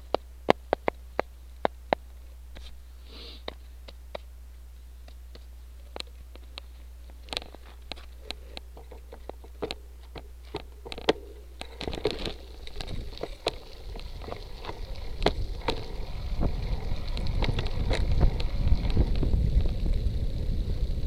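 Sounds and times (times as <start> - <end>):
bike tyres on gravel: 0.0 - 21.0
bike rattling: 5.2 - 21.0
wind noise on microphone: 11.6 - 21.0.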